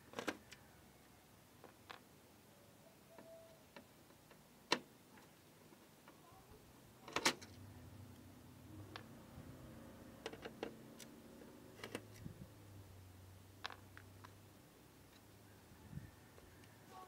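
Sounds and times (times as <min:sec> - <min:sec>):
faint low hum: 0:06.0 - 0:17.0.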